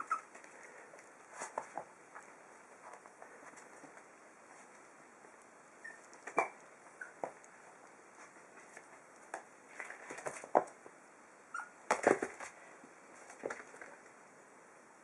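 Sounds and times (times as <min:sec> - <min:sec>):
puppies yipping and squeaking: 0:00.0 - 0:00.4, 0:05.8 - 0:07.4, 0:11.5 - 0:11.8
puppies scuffling: 0:00.0 - 0:10.9.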